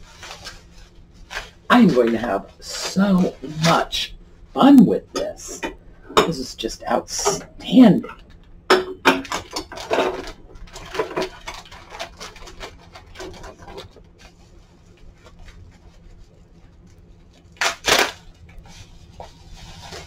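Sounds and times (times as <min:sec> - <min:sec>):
plastic bag crinkling: 0:00.0 - 0:04.2, 0:09.4 - 0:20.0.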